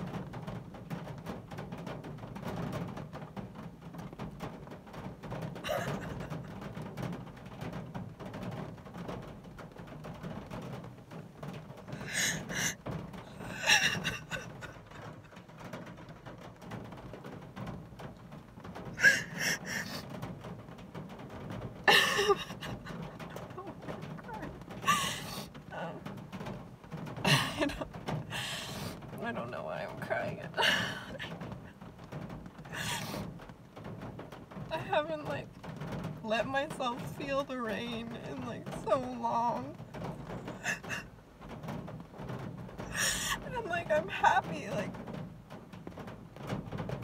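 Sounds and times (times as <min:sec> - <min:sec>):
sobbing catches of breath: 0:12.0 - 0:12.8, 0:19.0 - 0:20.0, 0:28.3 - 0:29.0, 0:32.7 - 0:33.2, 0:42.9 - 0:43.4
woman crying quietly: 0:12.0 - 0:15.3, 0:19.0 - 0:20.1, 0:40.6 - 0:41.2.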